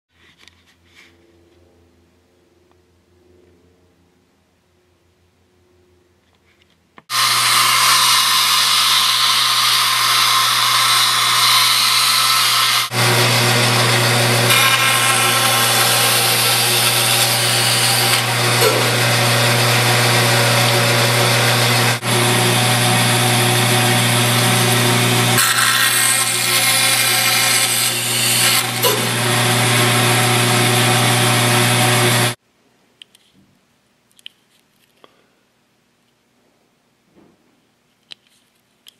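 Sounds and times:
power tool hissing and humming: 7.1 - 32.4.

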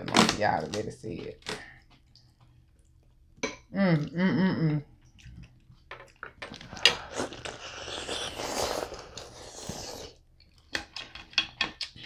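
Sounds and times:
wet biting and chewing: 6.5 - 10.8.

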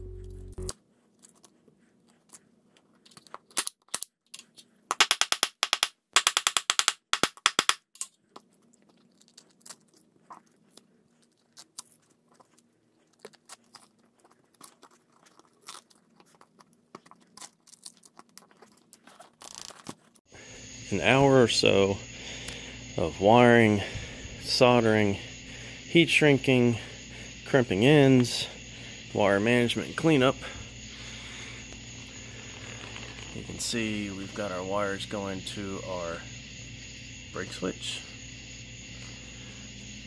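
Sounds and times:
velcro clicks and rustles: 7.6 - 20.3, 32.0 - 33.6
velcro ripping: 13.0 - 20.2, 32.4 - 33.4.

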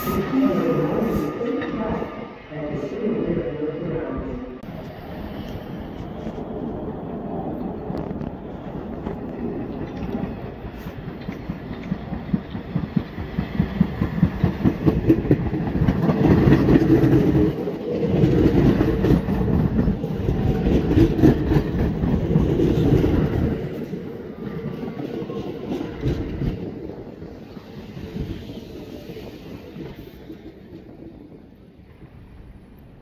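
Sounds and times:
subway train passing: 0.0 - 33.0
wheels clacking on rails: 7.6 - 32.8.

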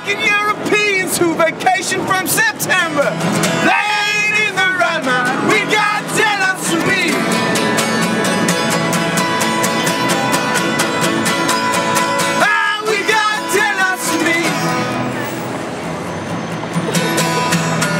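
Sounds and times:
man singing: 0.0 - 7.3, 12.4 - 14.8
acoustic guitars strummed: 0.0 - 17.9.

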